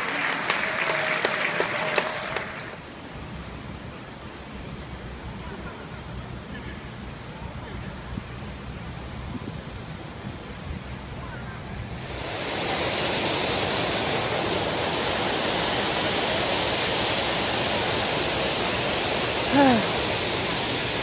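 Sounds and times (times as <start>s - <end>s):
fountain water jets splashing: 0.0s - 2.8s, 11.9s - 21.0s.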